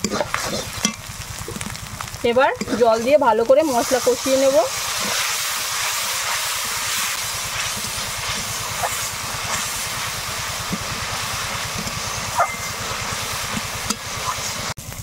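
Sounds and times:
metal spatula stirring: 0.0 - 1.0, 4.8 - 14.7
spice paste sizzling in a wok: 0.0 - 15.0.

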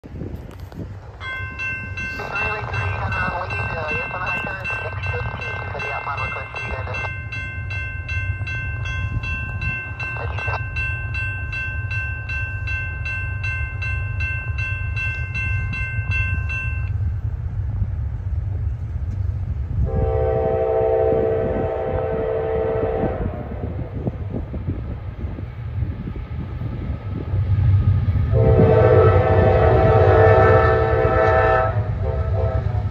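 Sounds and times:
steady low rumble: 0.0 - 32.9
distant locomotive horn: 19.8 - 23.9, 28.3 - 32.9.

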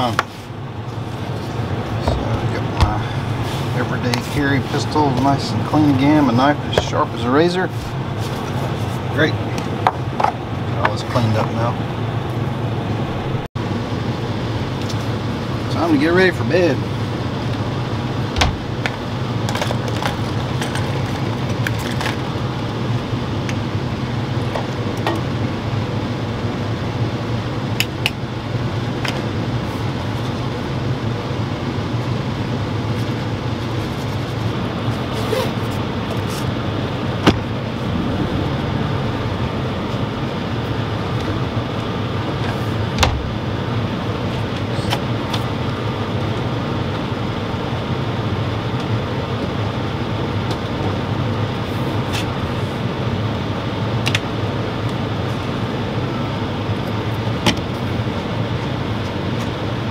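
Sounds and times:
air conditioner and generator hum: 0.0 - 59.9.

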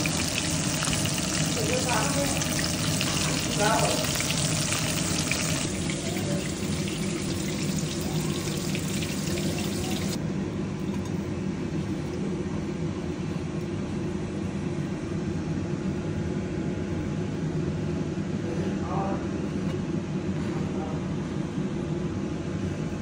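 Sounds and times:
fish sizzling in oil: 0.0 - 10.2
steady low hum: 0.0 - 23.0.

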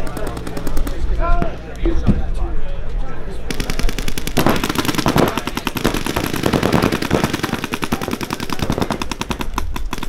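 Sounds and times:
paintball markers firing rapidly: 0.0 - 1.1, 3.5 - 10.0.

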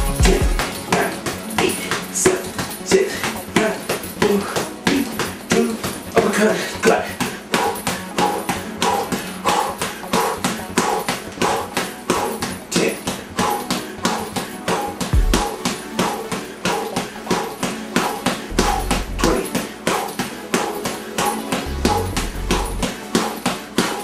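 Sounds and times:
background music: 0.0 - 24.0
gloves punching heavy bag: 0.0 - 24.0.

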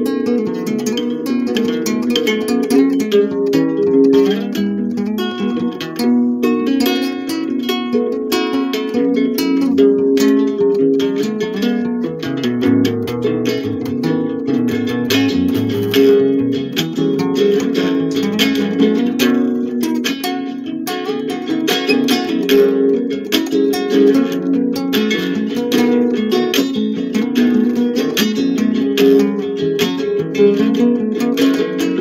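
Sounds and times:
solo guitar playing: 0.0 - 32.0
bass line: 12.6 - 17.2.

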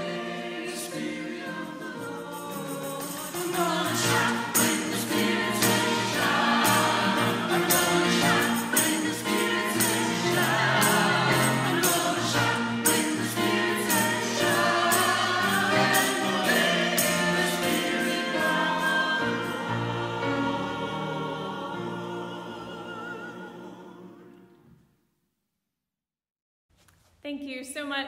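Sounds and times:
jingling percussion: 0.0 - 21.0
choir singing sacred music: 0.0 - 24.7
piano: 0.0 - 24.8.

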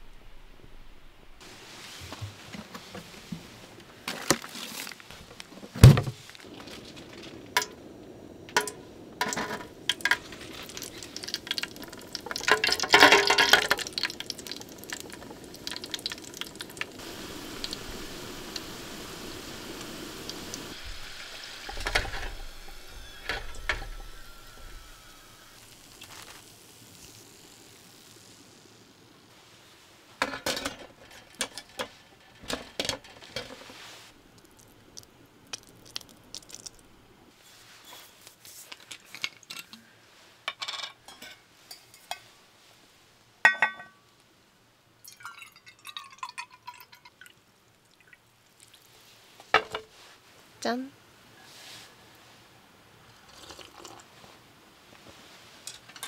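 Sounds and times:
fries sizzling in hot oil: 6.3 - 42.8, 45.0 - 56.0
fryer basket clinking: 8.5 - 16.2.

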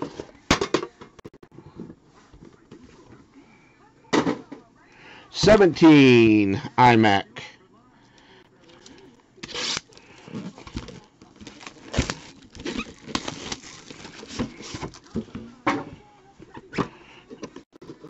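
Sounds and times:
cards and plastic packaging rustling: 8.6 - 15.5.

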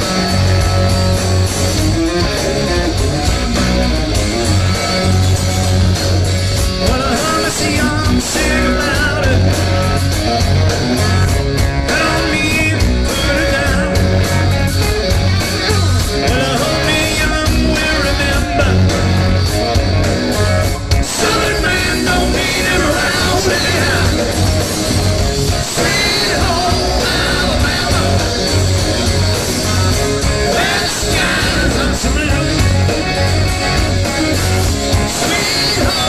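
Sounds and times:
bass guitar: 0.0 - 36.0
drums: 0.0 - 36.0
electric guitars: 0.0 - 36.0
person singing: 6.8 - 10.0, 11.8 - 14.4, 15.6 - 19.1, 21.0 - 24.6, 25.6 - 28.7, 30.4 - 36.0.

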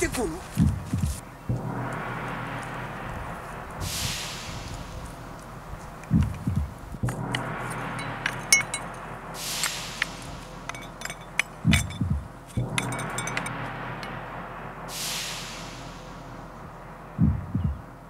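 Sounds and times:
low double thump: 0.6 - 2.2, 6.1 - 7.6, 11.6 - 13.1, 17.2 - 17.8
stick scraping among broken glass: 9.6 - 13.6.

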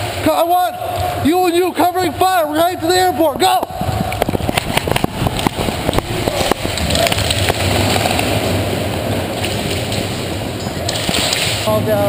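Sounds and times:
steady rushing noise: 0.0 - 12.0
running footsteps: 0.9 - 8.5.

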